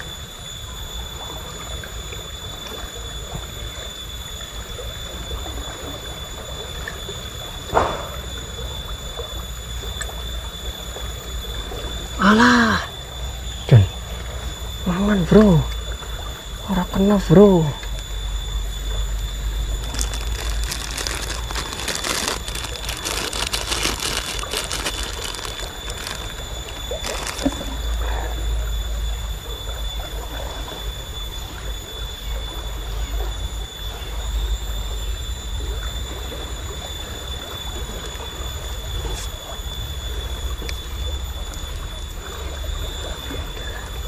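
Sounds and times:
plastic bag crackling: 19.8s - 27.7s.

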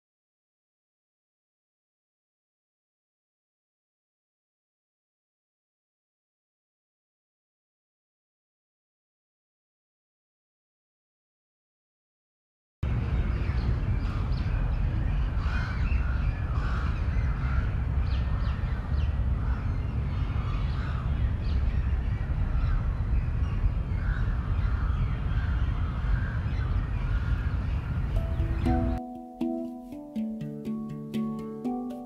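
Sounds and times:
steady low rumble: 12.8s - 29.0s
crows cawing: 15.4s - 17.7s, 20.4s - 21.1s.

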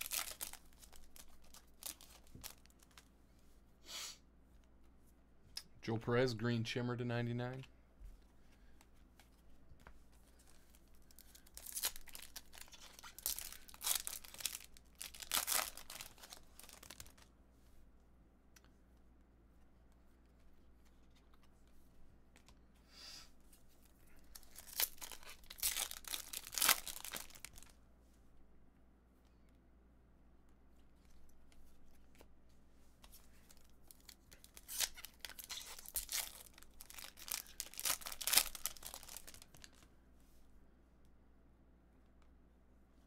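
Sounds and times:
card pack wrappers tearing: 0.0s - 2.8s, 11.1s - 17.2s, 24.3s - 27.7s, 33.5s - 39.8s.

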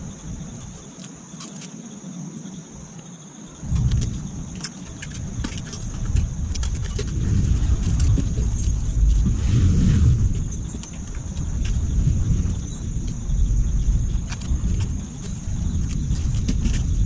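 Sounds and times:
low rumble: 3.6s - 17.0s.

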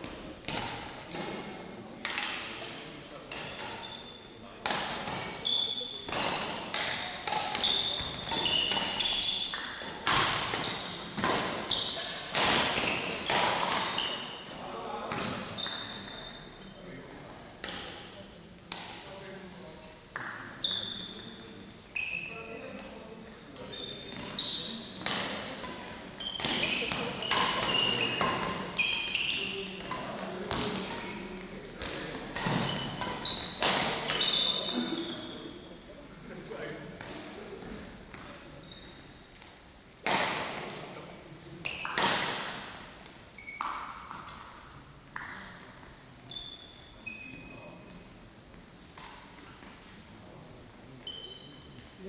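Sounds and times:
rackets hitting shuttlecock: 0.0s - 4.0s, 4.6s - 16.1s, 23.6s - 35.4s, 39.4s - 40.8s, 41.6s - 45.6s
shoes squeaking on floor: 3.4s - 4.3s, 5.0s - 14.6s, 15.2s - 16.7s, 19.6s - 23.0s, 23.6s - 31.2s, 32.2s - 35.7s, 38.2s - 39.5s, 43.3s - 44.4s, 46.2s - 48.0s, 51.0s - 52.0s
shuttlecock hit by racket: 41.7s - 42.7s.

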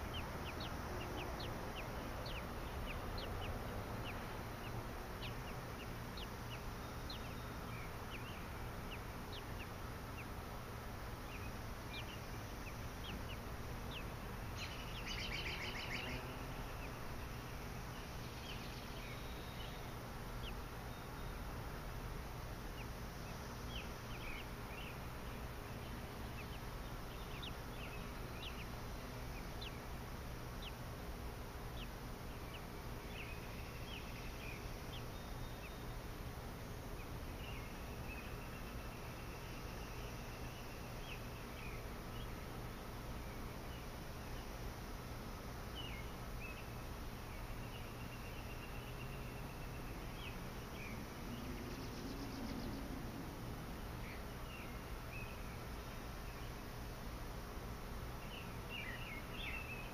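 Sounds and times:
bird chirps: 0.0s - 10.3s, 11.2s - 21.5s, 22.7s - 29.9s, 45.7s - 53.0s, 58.2s - 59.9s.

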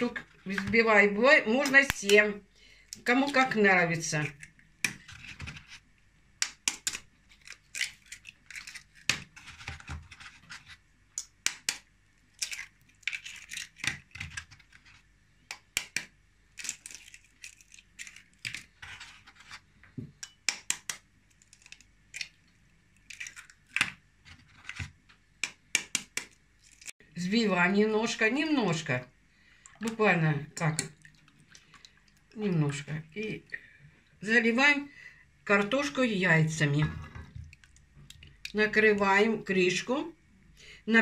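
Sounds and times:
eggs cracking on a metal fork: 20.2s - 24.0s.

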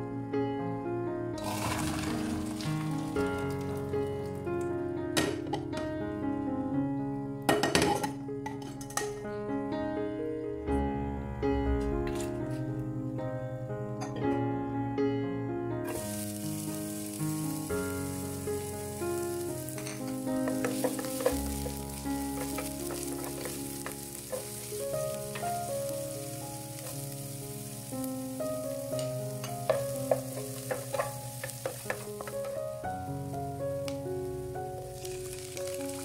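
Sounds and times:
soft background music: 0.0s - 36.0s
onion sizzling in frying pan: 1.4s - 4.5s, 15.9s - 36.0s
wooden spatula scraping pan: 19.8s - 24.6s.

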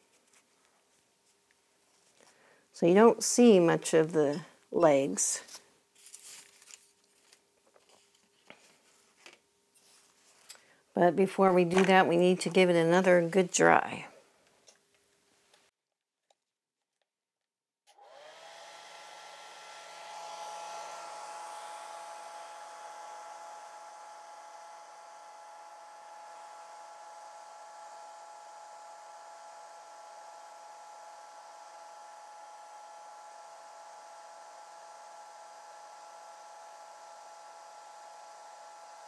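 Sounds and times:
hair dryer motor whine: 17.9s - 39.0s.

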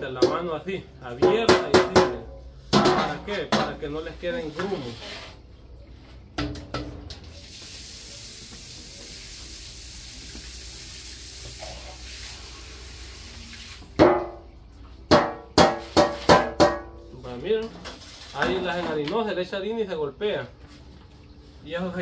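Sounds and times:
metal cake pan knocks: 0.1s - 0.5s, 1.2s - 3.8s, 14.0s - 14.4s, 15.1s - 17.1s
batter swishing in metal bowl: 4.0s - 5.5s.

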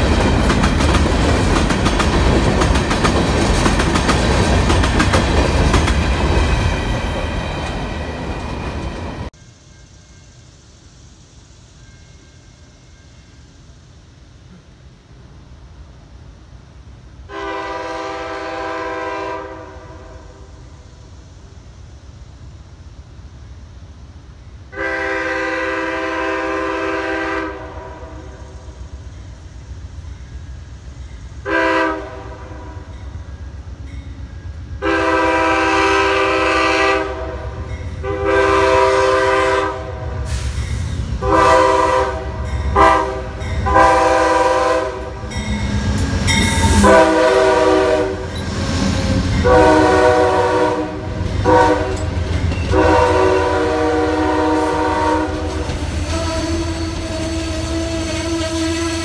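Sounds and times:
train wheels rumbling on rails: 0.0s - 59.0s
train horn blasts: 17.3s - 20.6s, 24.7s - 28.6s, 31.4s - 33.0s, 34.8s - 40.6s, 41.2s - 48.4s, 49.0s - 59.0s.

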